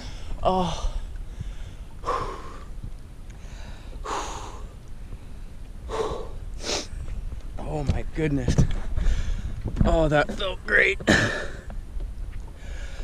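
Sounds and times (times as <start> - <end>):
man gasping and exhaling: 0.0 - 2.7, 3.4 - 4.8, 5.9 - 7.0, 9.0 - 9.6, 12.6 - 13.0.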